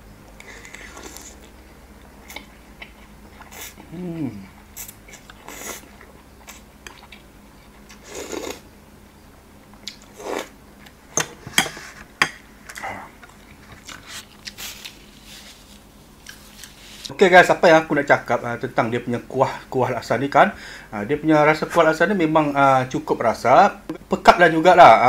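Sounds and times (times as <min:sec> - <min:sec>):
person slurping noodles: 0:00.4 - 0:01.5, 0:08.0 - 0:08.6, 0:10.2 - 0:10.5.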